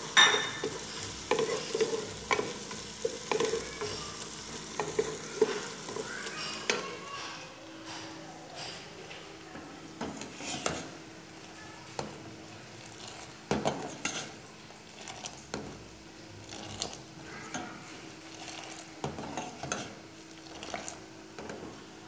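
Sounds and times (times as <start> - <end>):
metal spoon stirring in pot: 0.0 - 7.3, 10.0 - 11.0, 12.8 - 15.8, 16.4 - 21.7.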